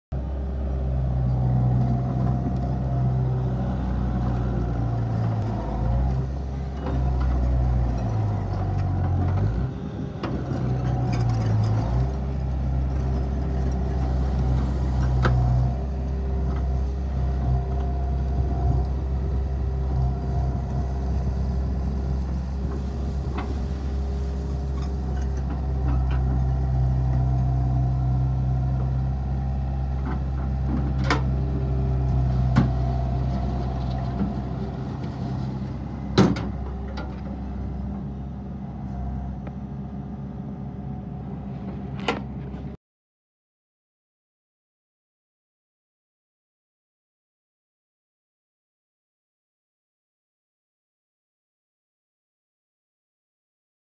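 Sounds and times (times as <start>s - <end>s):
track loader engine running: 0.2s - 42.8s.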